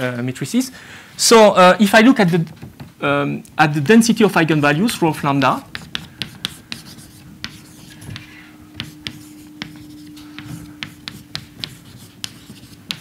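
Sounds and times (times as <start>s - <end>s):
faint steady hum: 0.0s - 13.0s
chalk tapping and scraping on chalkboard: 3.8s - 13.0s.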